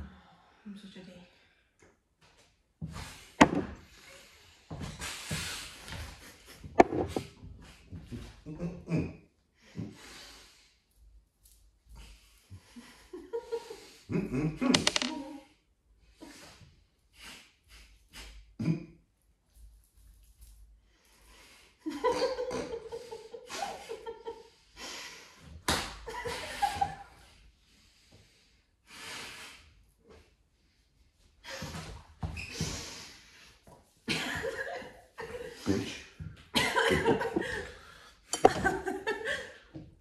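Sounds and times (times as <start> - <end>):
stifled laughter and snorting: 21.9 - 24.5.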